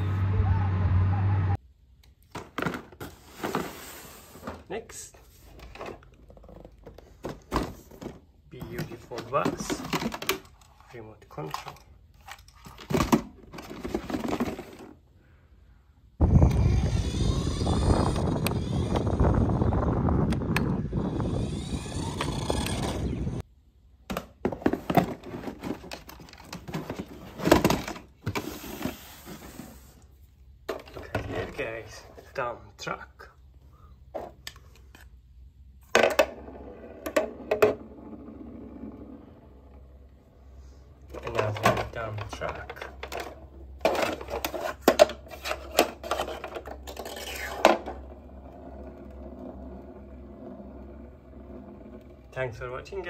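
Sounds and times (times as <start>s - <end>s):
plastic and cardboard handling: 2.2s - 15.0s, 24.0s - 32.3s, 41.0s - 48.4s
wind rumbling on microphone: 16.2s - 23.4s
spinning top whirring: 16.3s - 23.4s.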